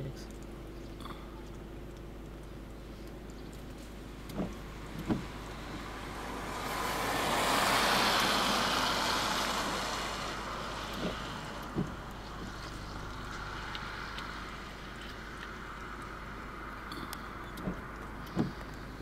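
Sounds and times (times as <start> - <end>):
short knocks: 4.3 - 5.3
car passing by: 4.3 - 19.0.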